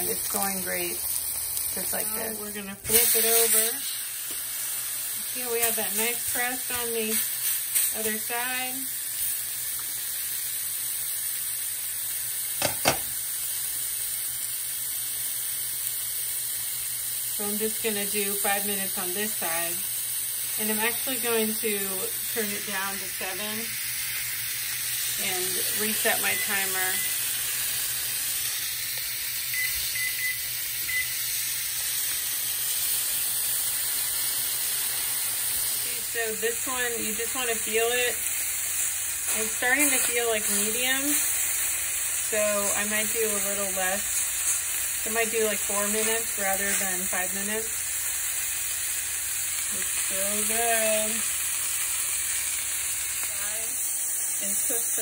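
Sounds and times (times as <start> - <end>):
steak sizzling in a pan: 0.0 - 55.0
short beeps: 29.5 - 31.2.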